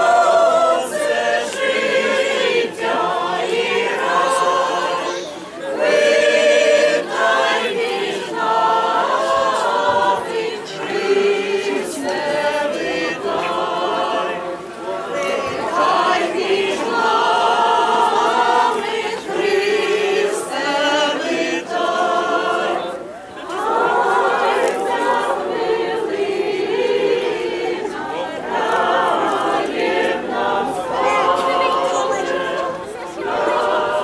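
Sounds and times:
choir singing a cappella: 0:00.0 - 0:34.0.

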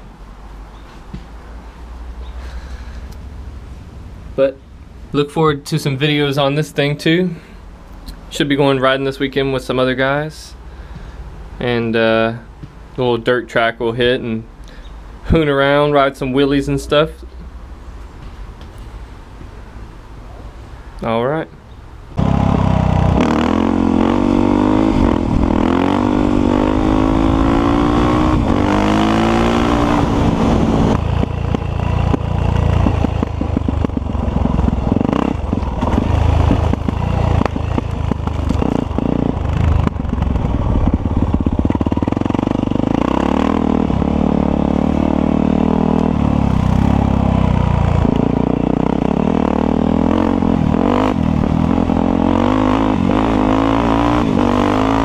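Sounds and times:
motorcycle engine revving: 0:22.1 - 0:55.0
knocks and rattles on dirt trail: 0:31.0 - 0:43.1.

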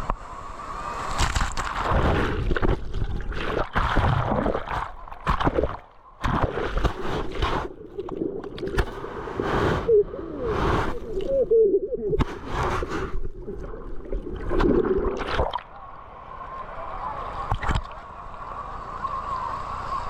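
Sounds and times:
sea water sloshing and gurgling: 0:01.0 - 0:15.9.

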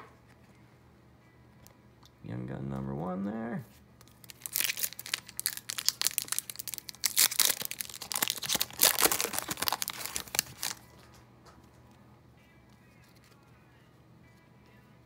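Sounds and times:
foil wrapper tearing and crinkling: 0:04.0 - 0:10.8.

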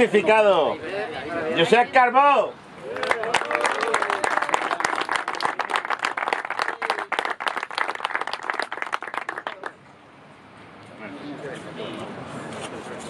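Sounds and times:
people clapping: 0:02.8 - 0:09.8.

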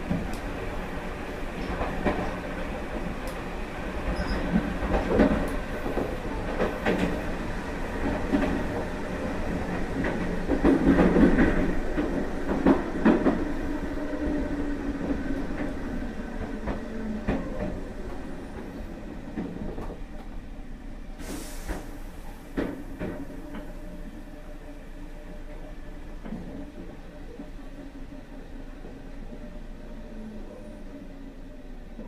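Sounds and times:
train wheel rumble: 0:00.0 - 0:32.0
clacks over rail joints: 0:09.6 - 0:13.5.

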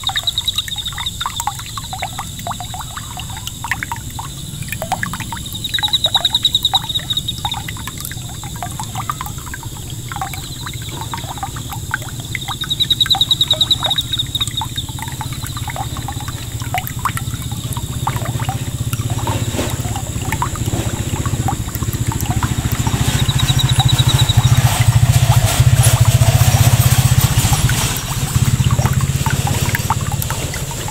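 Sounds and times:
fountain water splashing: 0:00.0 - 0:30.9
high pulsing trill: 0:10.3 - 0:30.9.

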